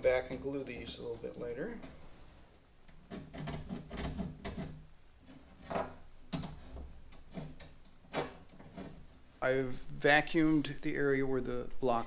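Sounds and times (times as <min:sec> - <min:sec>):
light wooden knocks and scrapes: 0:00.2 - 0:09.2.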